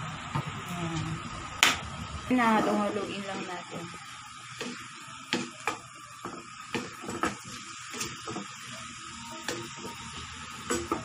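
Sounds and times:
chicken sizzling in a wok: 0:00.0 - 0:11.0.

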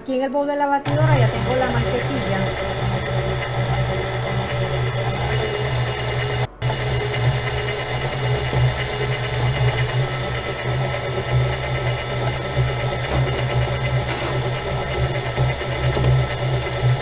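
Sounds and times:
stand mixer motor hum: 0:00.9 - 0:17.0.

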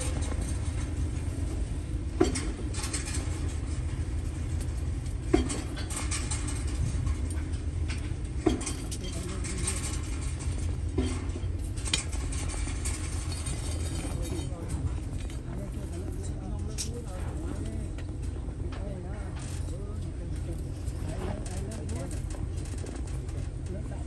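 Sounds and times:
wire scratching: 0:19.3 - 0:24.0.

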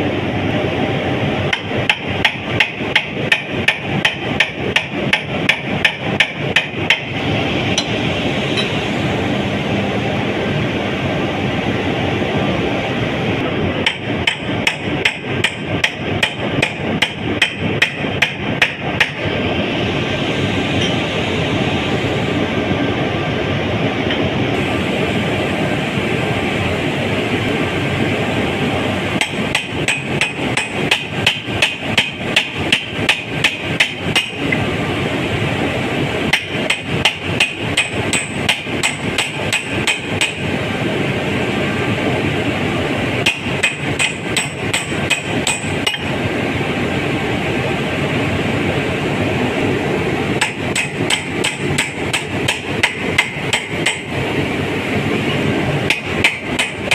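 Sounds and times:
machinery drone: 0:00.0 - 0:56.9
hammer striking metal: 0:01.5 - 0:07.1, 0:07.7 - 0:08.8, 0:13.8 - 0:19.3, 0:29.2 - 0:34.5, 0:36.3 - 0:40.4, 0:43.2 - 0:46.1, 0:50.4 - 0:54.1, 0:55.9 - 0:56.9.

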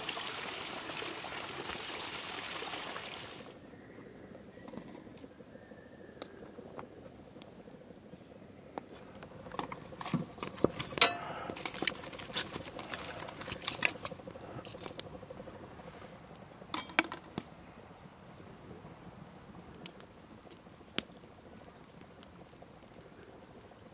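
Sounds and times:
wood fire crackling: 0:06.2 - 0:23.9.

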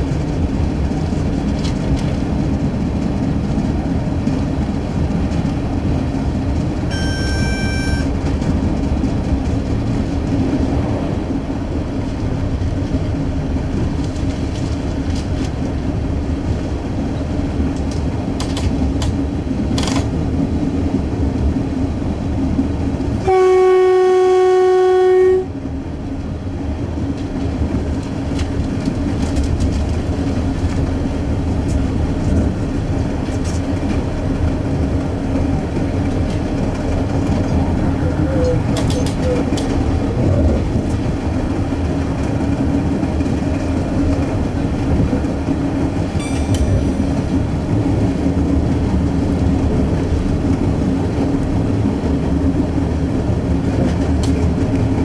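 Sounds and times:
train running on rails: 0:00.0 - 0:55.0
short high tone: 0:06.9 - 0:08.1
train horn blast: 0:06.9 - 0:08.1, 0:23.2 - 0:25.6.

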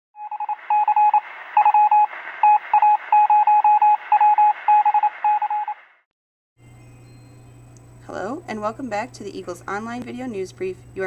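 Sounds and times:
morse code beeps: 0:00.2 - 0:05.8
radio static hiss: 0:00.5 - 0:03.2.

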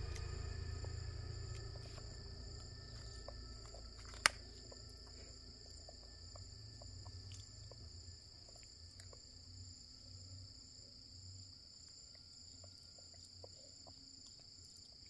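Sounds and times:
high-pitched insect drone: 0:00.0 - 0:14.3.

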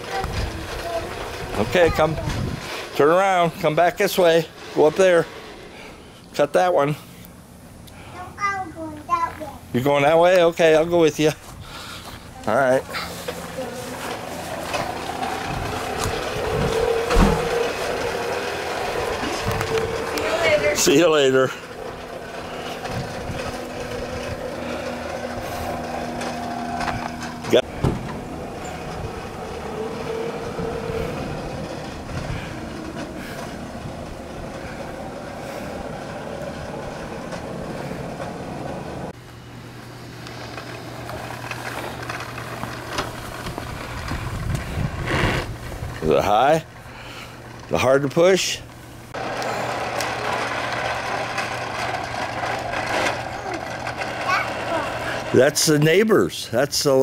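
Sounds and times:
toy lawn mower humming: 0:00.0 - 0:07.2, 0:09.9 - 0:57.0
thump: 0:27.8 - 0:28.2.

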